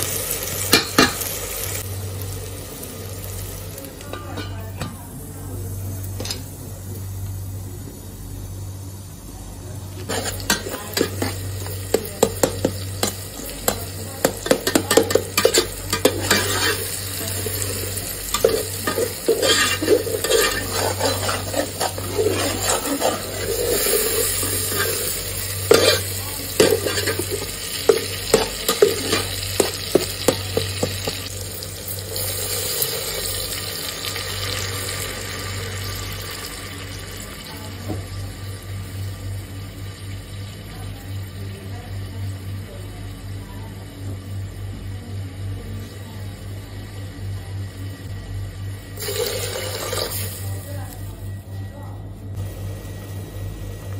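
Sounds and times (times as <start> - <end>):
masala sizzling in pot: 0.0 - 51.4, 52.3 - 53.9
metal spoon clinking on pot: 10.1 - 16.9, 18.3 - 31.2.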